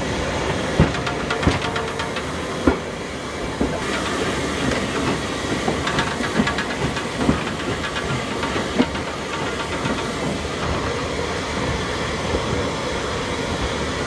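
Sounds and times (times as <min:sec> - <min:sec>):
locomotive rattling: 0:00.0 - 0:12.6
sharp metal clanks: 0:00.6 - 0:11.0.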